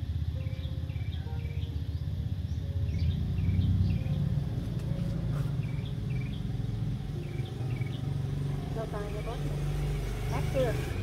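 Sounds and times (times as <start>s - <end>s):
motor vehicle rumble: 0.0s - 11.0s.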